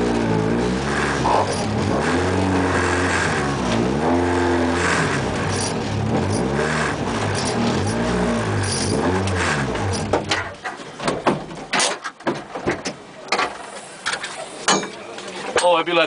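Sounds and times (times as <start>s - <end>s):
car engine revving: 0.0s - 10.4s.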